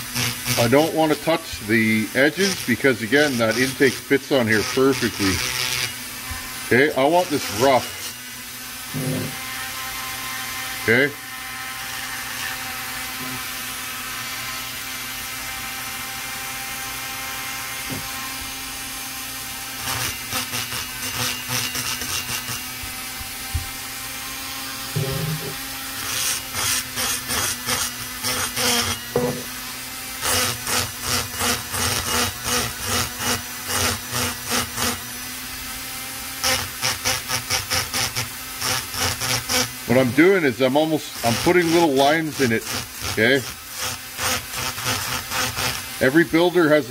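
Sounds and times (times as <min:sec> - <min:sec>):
rotary tool whining: 0:00.0 - 0:46.8
burr scraping metal: 0:08.9 - 0:09.6, 0:24.9 - 0:29.5.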